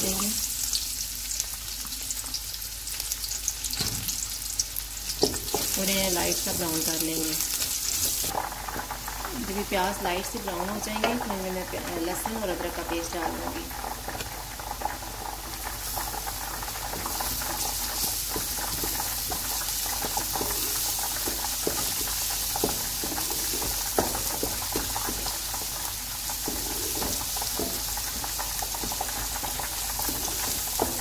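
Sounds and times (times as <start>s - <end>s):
onions sizzling in oil: 0.0s - 31.0s
wooden spatula scraping pan: 17.0s - 31.0s.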